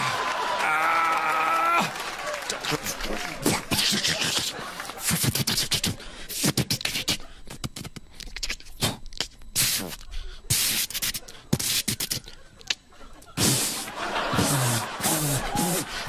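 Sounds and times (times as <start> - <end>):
mouth clicks: 3.4 - 16.0
mouth hissing bursts: 5.0 - 12.4, 13.4 - 16.0.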